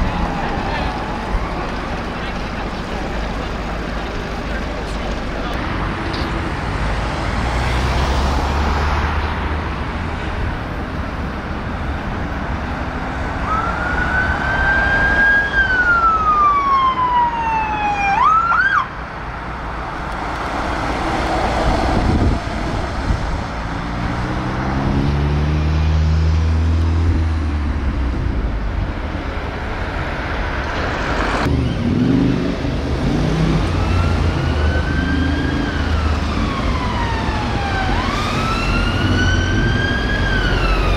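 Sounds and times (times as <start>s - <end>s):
ambulance siren wailing: 0.0s - 2.1s, 13.4s - 19.0s, 33.5s - 40.9s
engine running: 0.0s - 7.9s
traffic noise: 0.0s - 40.9s
siren yelp: 13.4s - 18.9s, 33.8s - 40.9s.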